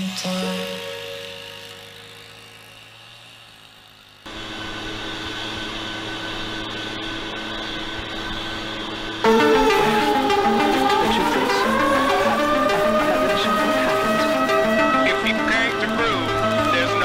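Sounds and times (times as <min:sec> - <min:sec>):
background music: 0:00.0 - 0:02.9, 0:09.2 - 0:17.0
leaf blower running: 0:00.0 - 0:17.0.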